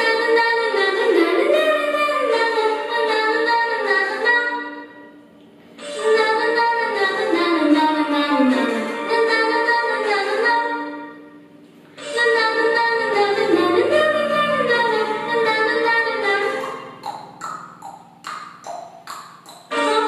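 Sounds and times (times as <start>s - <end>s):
boy singing slow song: 5.8s - 11.0s, 12.0s - 16.8s.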